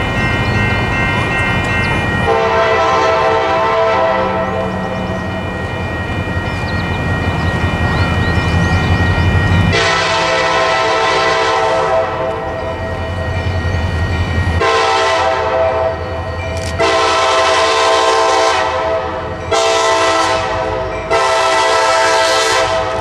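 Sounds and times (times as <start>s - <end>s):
locomotive engine rumble: 0.0s - 22.1s
locomotive air horn blasts: 2.3s - 5.2s, 9.7s - 12.5s, 14.6s - 16.0s, 16.8s - 23.0s.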